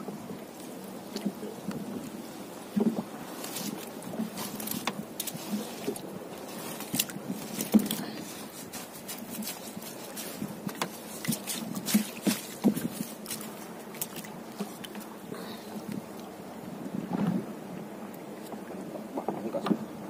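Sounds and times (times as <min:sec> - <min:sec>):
knocks and clicks against hull: 0:02.7 - 0:15.1, 0:18.4 - 0:19.9
wet net hauled over boat gunwale: 0:02.7 - 0:16.3.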